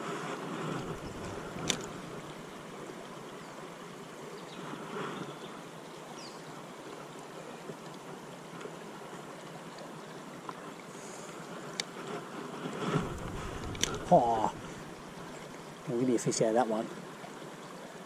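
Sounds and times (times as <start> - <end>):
river flowing: 0.0 - 18.0.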